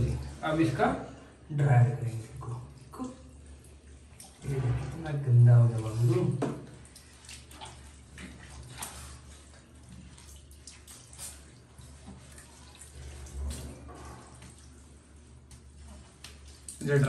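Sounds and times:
water dripping onto tiled floor: 2.0 - 4.5, 6.4 - 17.0.

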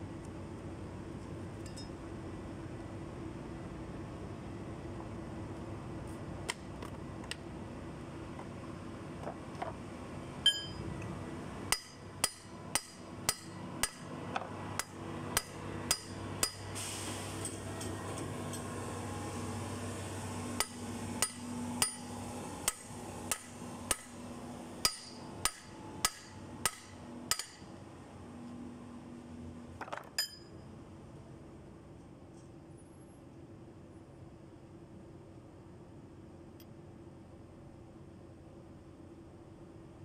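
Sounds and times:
hammer striking metal hub: 10.4 - 10.8, 11.7 - 14.1, 14.8 - 16.7, 20.6 - 24.2, 24.8 - 27.7, 30.1 - 30.5.

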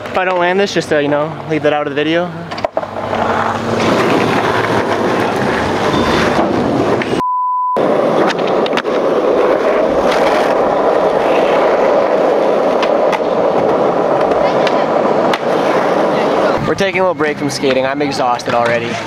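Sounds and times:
skateboard wheels rolling on asphalt: 0.0 - 7.2, 7.8 - 19.0
censor bleep: 7.2 - 7.8.

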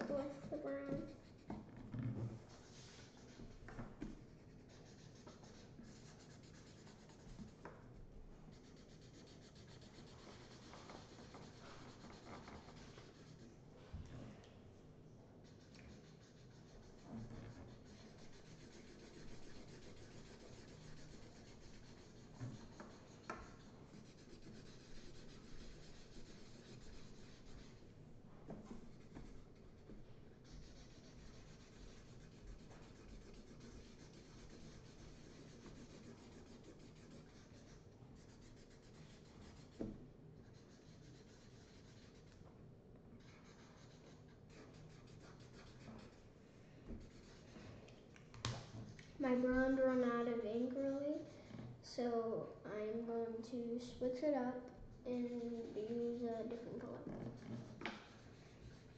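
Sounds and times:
felt-tip markers scratching on paper: 0.0 - 1.9, 2.5 - 7.7, 8.5 - 13.5, 15.4 - 42.4, 43.2 - 46.3, 46.9 - 47.7, 55.1 - 58.9.

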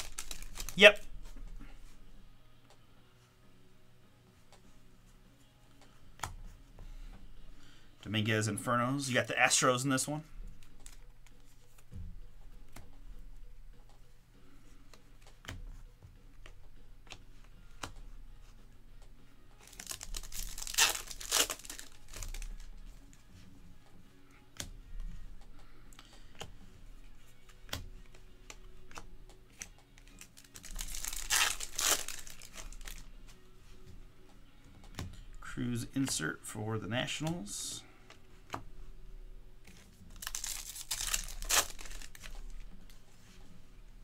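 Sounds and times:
plastic foil wrappers tearing: 0.0 - 0.9, 19.6 - 22.7, 30.0 - 33.0, 40.1 - 42.6
cards clicking: 0.0 - 1.0, 14.9 - 18.2, 19.0 - 23.2, 24.5 - 33.1, 39.6 - 43.0.

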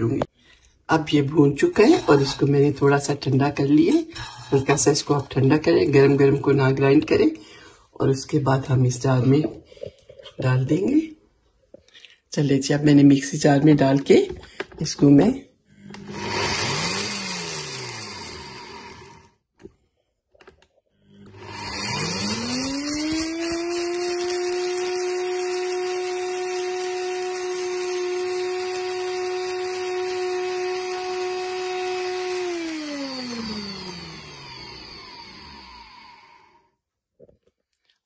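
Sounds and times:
blender motor grinding spices: 15.7 - 19.4, 21.0 - 36.7.

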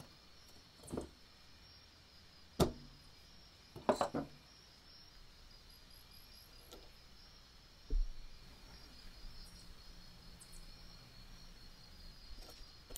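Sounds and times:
soft thump: 7.9 - 8.2.

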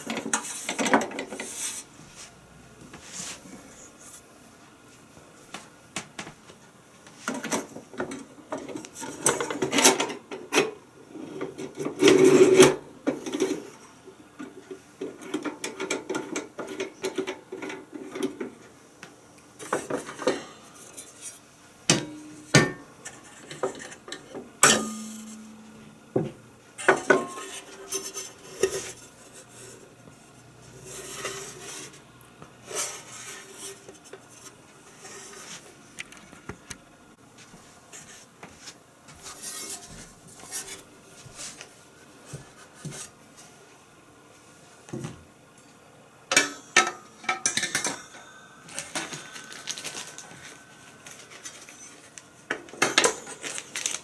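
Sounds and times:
metal scraping and rubbing: 30.6 - 32.0, 32.6 - 35.7.

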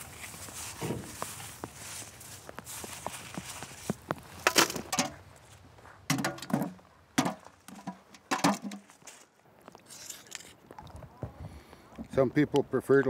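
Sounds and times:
shells and gravel clattering: 0.6 - 10.6.

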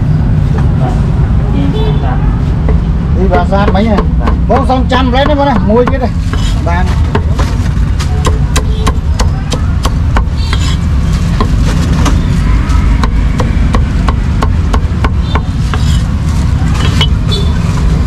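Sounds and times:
low rumble of street noise: 0.0 - 18.0
cleaver chopping on wooden block: 3.6 - 7.4.

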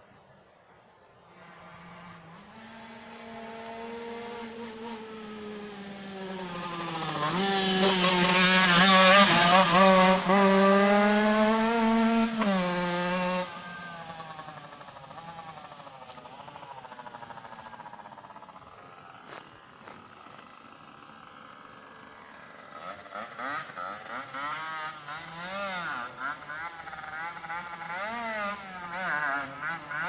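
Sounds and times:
dirt bike engine buzzing: 1.2 - 30.0.

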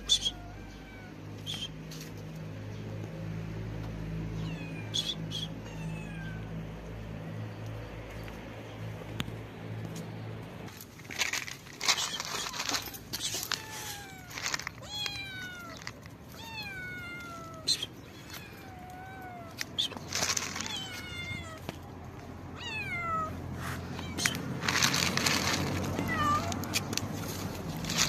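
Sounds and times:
kittens meowing: 0.0 - 1.6, 4.3 - 7.1, 11.8 - 28.0
plastic bag rustling: 10.9 - 15.0, 19.8 - 21.0, 24.6 - 26.4
dry cat food pouring: 11.0 - 15.0, 19.8 - 21.0, 24.2 - 26.5, 27.3 - 28.0.

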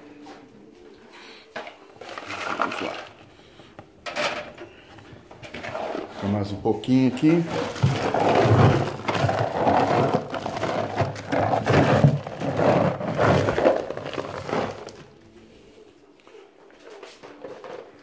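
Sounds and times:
pellets clattering and crunching: 2.0 - 15.2
sack rustling: 7.2 - 15.1.

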